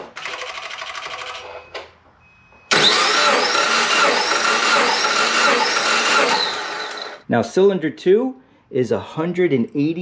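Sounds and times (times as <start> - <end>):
engine cranking without firing: 2.7 - 7.2.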